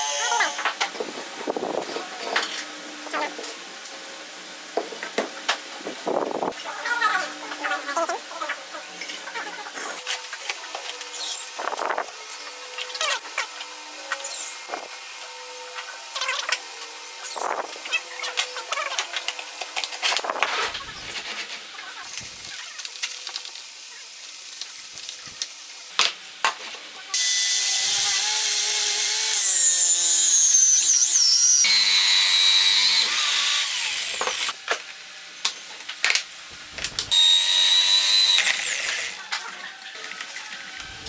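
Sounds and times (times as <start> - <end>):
electric drill cutting wood: 0.0 - 0.8, 27.1 - 34.6, 36.5 - 41.0.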